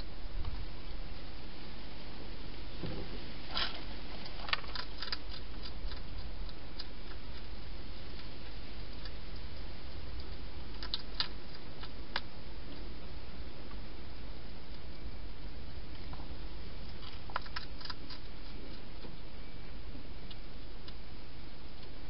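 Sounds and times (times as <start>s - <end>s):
steady hiss: 0.0s - 22.0s
hedgehog chewing clicks: 3.6s - 8.3s, 8.9s - 12.8s, 16.8s - 19.2s, 20.2s - 21.0s.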